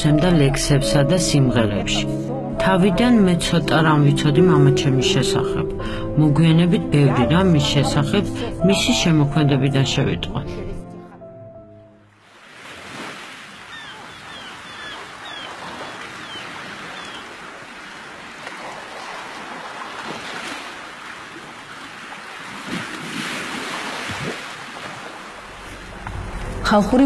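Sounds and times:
sea waves rushing: 12.1s - 27.0s
wind: 12.1s - 27.0s.

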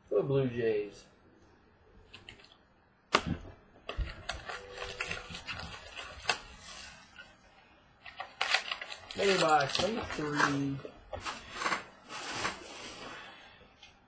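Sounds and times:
foil wrapper tearing and crinkling: 4.2s - 6.9s, 8.0s - 12.8s.

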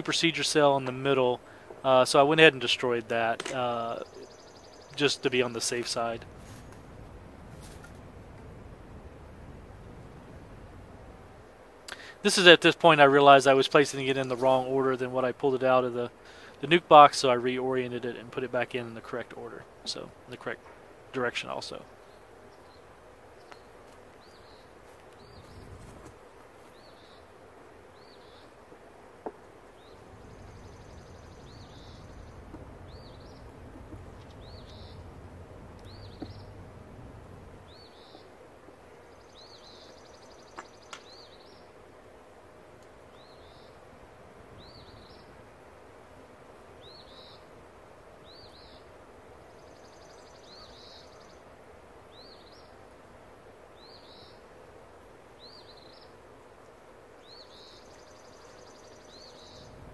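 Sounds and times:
small bird chirping: 3.7s - 6.6s, 21.8s - 27.3s, 27.9s - 28.6s, 29.7s - 36.7s, 37.6s - 38.3s, 39.1s - 41.7s, 43.1s - 43.8s, 44.6s - 45.4s, 46.8s - 47.5s, 48.2s - 51.4s, 57.2s - 59.8s.

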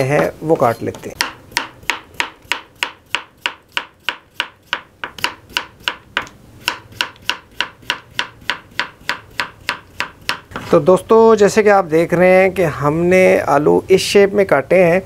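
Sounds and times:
knife slicing potato on board: 0.2s - 10.8s.

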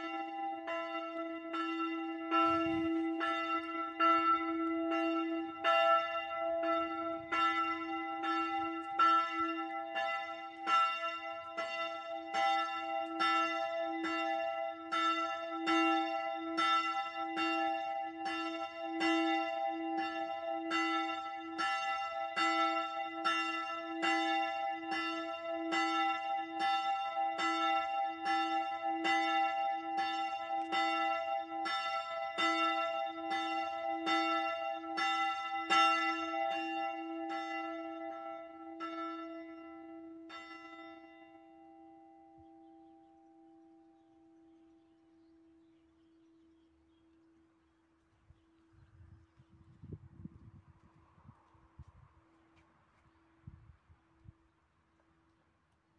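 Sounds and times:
church bell ringing: 0.0s - 46.9s.

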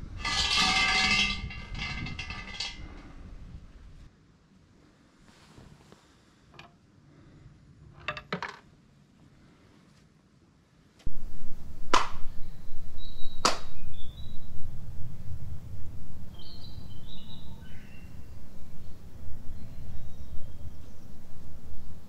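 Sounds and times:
wind rumble on microphone: 0.0s - 4.1s, 11.1s - 22.0s
small birds chirping: 12.1s - 22.0s
hand claps: 13.4s - 13.7s.

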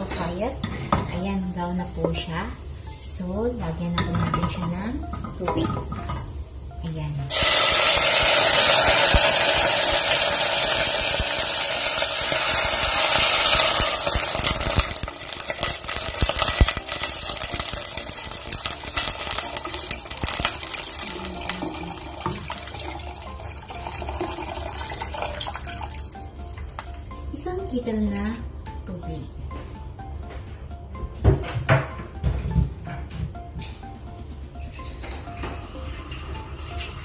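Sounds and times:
water hissing in hot pot: 7.3s - 26.0s
water pouring and splashing: 7.3s - 26.1s.

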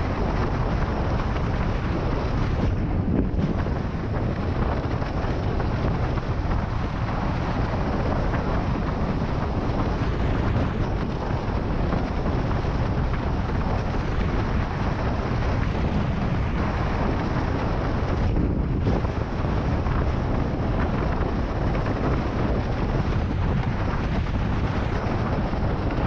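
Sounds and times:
board rushing over choppy water: 0.0s - 26.0s
wind buffeting microphone: 0.0s - 26.0s.

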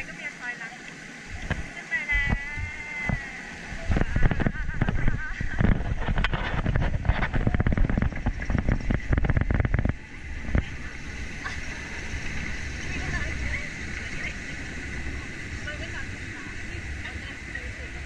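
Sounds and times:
low rumble: 1.2s - 18.0s
boat and track clattering: 3.8s - 18.0s.

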